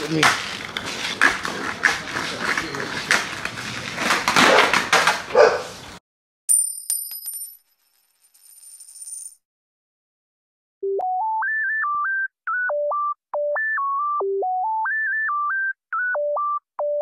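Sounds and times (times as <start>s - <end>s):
electronic beep tune: 10.8s - 17.0s.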